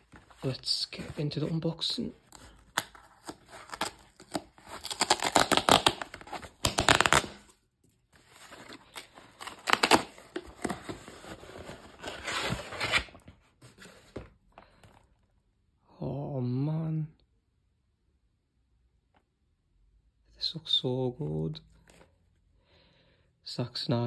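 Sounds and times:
cardboard and tape ripping: 2.4s - 7.6s, 8.2s - 13.2s.

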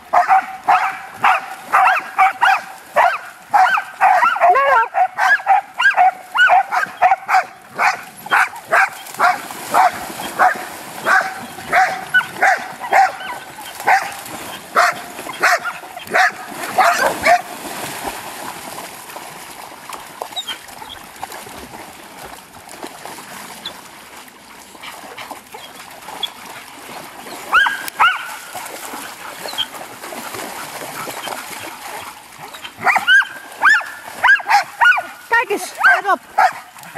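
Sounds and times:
dogs splashing in water: 0.0s - 36.9s
dog barking excitedly: 0.1s - 14.1s, 14.8s - 17.5s, 27.5s - 28.4s, 32.8s - 36.7s.

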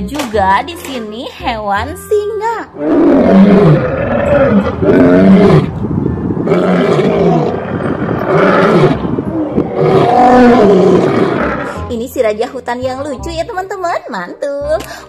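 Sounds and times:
lions roaring: 2.8s - 5.8s, 6.4s - 11.8s.

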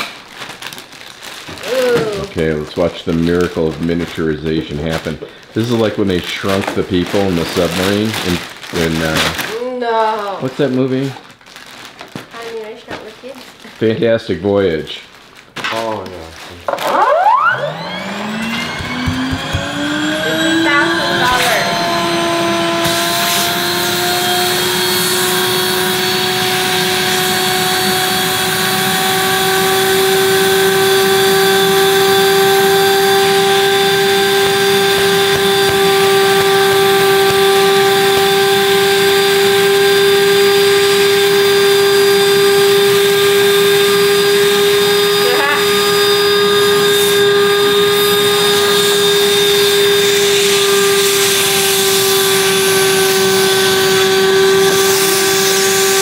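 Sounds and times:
vacuum cleaner motor whine: 16.7s - 56.0s.

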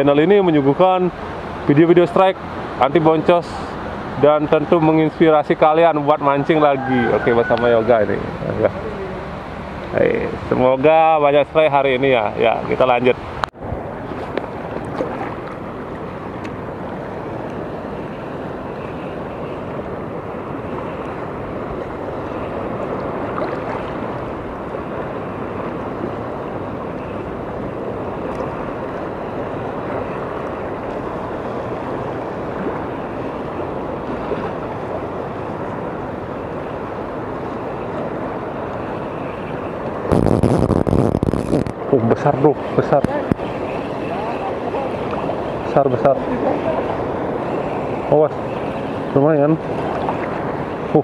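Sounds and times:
shallow sea water washing: 0.0s - 51.0s
wind on microphone: 11.9s - 51.0s.

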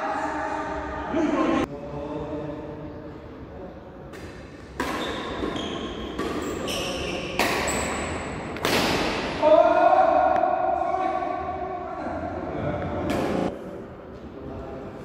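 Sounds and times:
rackets striking shuttlecock: 4.1s - 9.4s
shoe squeaks on court: 5.0s - 8.1s.

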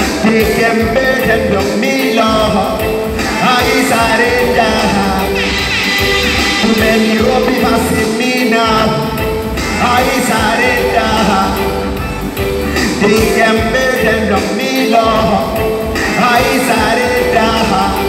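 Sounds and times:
man singing into microphone: 0.0s - 5.8s, 6.5s - 12.0s, 12.8s - 18.0s
backing track with heavy bass: 0.0s - 18.0s.

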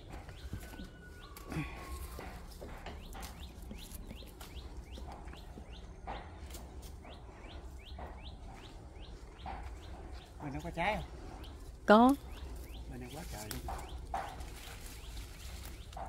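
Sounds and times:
small bird chirping: 2.9s - 16.0s
leaves rustling: 11.6s - 16.0s.

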